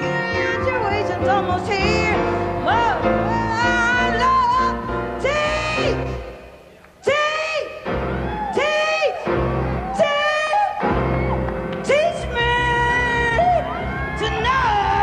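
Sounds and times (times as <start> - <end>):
woman jazz singing: 0.0 - 6.2.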